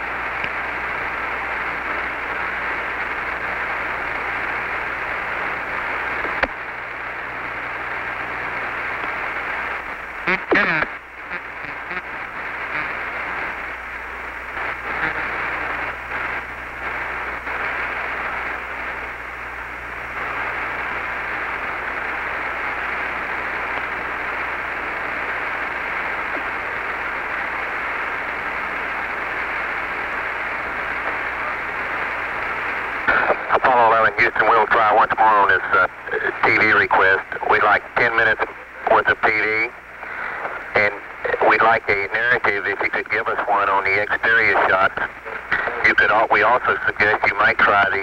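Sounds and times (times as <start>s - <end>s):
faint crackles: 0.0s - 48.0s
low steady hum: 0.0s - 48.0s
radio static hiss: 0.0s - 48.0s.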